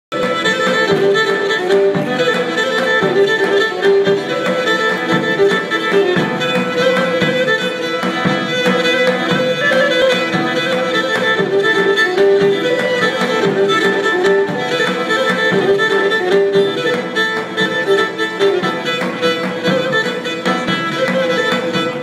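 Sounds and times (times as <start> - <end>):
bowed string folk dance melody: 0.1 - 22.0.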